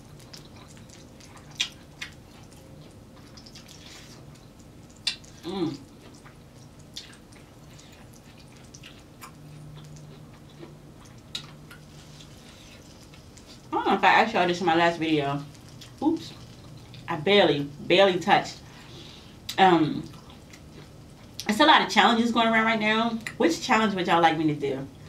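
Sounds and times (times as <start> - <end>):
wet chewing and lip smacks: 0.0 - 13.8, 15.4 - 17.1, 19.4 - 21.5
person humming mm: 5.4 - 5.8.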